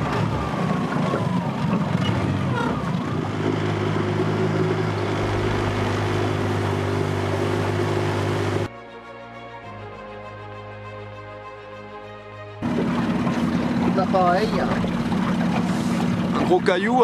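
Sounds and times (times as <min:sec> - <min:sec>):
outboard motor droning: 0:00.0 - 0:08.7, 0:12.6 - 0:17.0
water noise: 0:00.0 - 0:08.7, 0:12.6 - 0:17.0.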